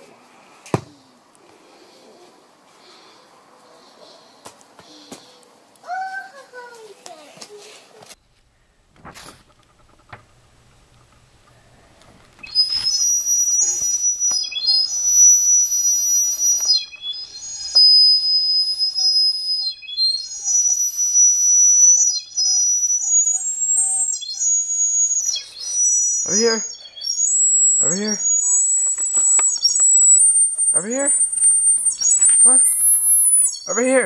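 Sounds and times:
high-pitched whistling tones: 12.3 - 34.0.

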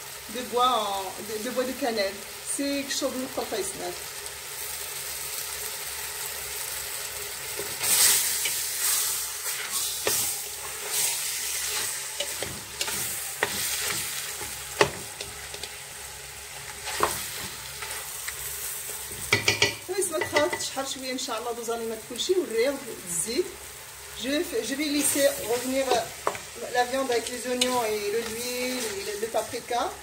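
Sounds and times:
meat and onions sizzling in oil: 0.0 - 30.0
wooden spoon knocking on pot: 19.3 - 20.7.

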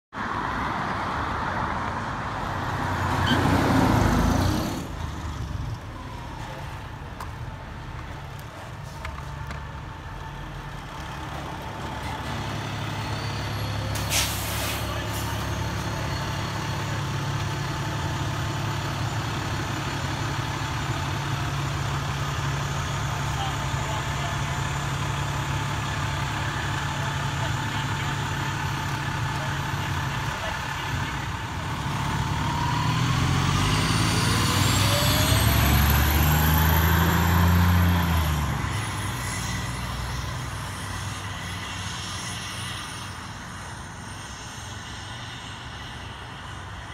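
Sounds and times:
car passing by: 0.2 - 5.6, 31.6 - 43.4
fire engine diesel rumble: 0.9 - 46.9.

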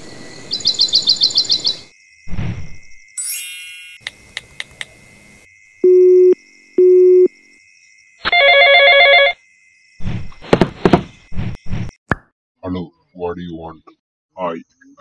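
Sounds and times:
ringback tone beeps: 5.8 - 7.3
phone ringtone: 8.3 - 9.4
knocks: 10.4 - 11.2.

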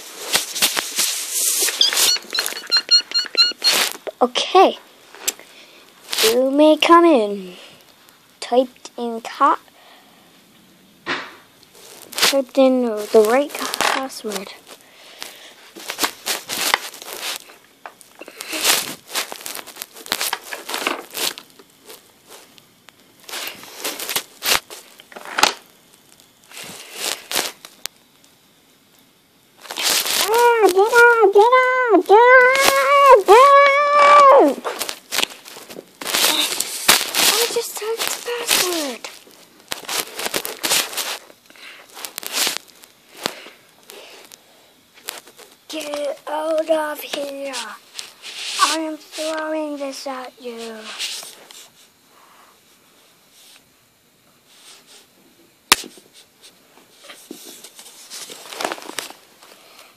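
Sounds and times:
toys rustling: 0.0 - 5.4, 6.0 - 7.7, 11.8 - 22.5, 29.6 - 44.2, 45.0 - 51.7, 57.0 - 59.5.

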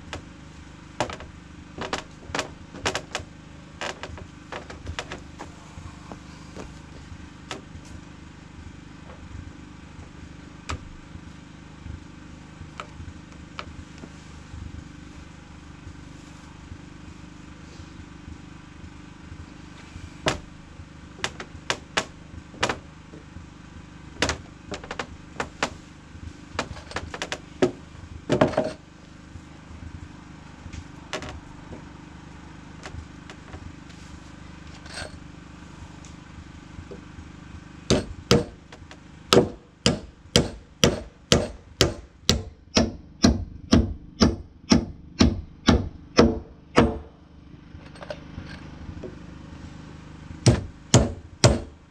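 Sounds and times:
hammer striking wooden boards: 20.2 - 20.5, 21.2 - 22.8, 24.2 - 25.8, 26.6 - 28.8, 37.9 - 47.2, 50.5 - 51.8.

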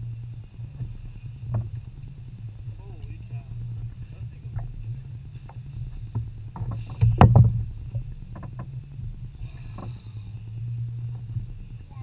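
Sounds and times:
low rumble: 0.0 - 12.0
water slapping against boat hull: 5.4 - 8.8.

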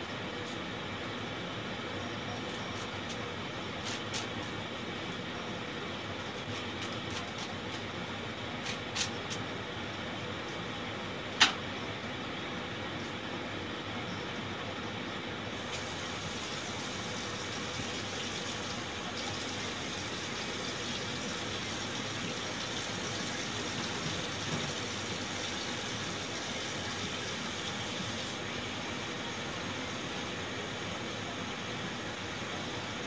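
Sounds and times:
fan-like hum: 0.0 - 33.0
kitchen tap running: 15.7 - 28.5.

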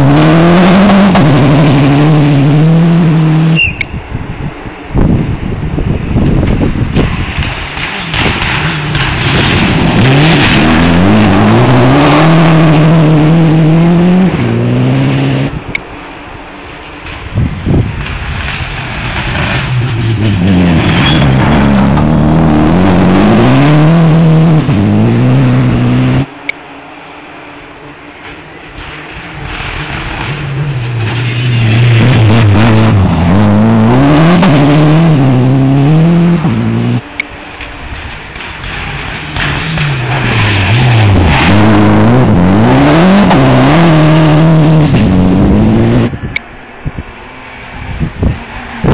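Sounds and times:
rally car engine passing: 0.0 - 3.6, 7.0 - 17.2, 17.9 - 28.1, 28.7 - 48.9
tyres throwing up gravel: 6.9 - 12.9, 17.0 - 24.0, 28.4 - 35.4, 37.4 - 45.2.

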